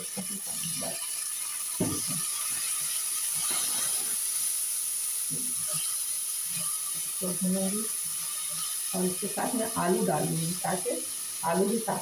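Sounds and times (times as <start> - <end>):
hot oil sizzling: 0.0 - 12.0
spatula scraping a pan: 0.4 - 4.4, 5.4 - 7.2, 8.0 - 9.0.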